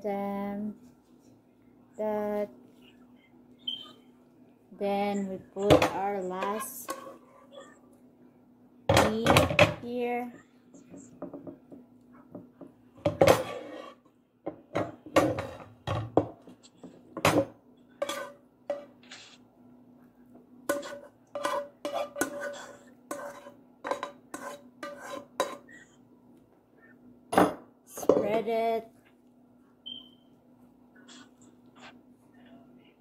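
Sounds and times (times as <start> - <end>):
spoon scraping metal frying pan: 6.3 - 7.6, 13.2 - 14.0, 18.0 - 18.9, 20.7 - 25.7.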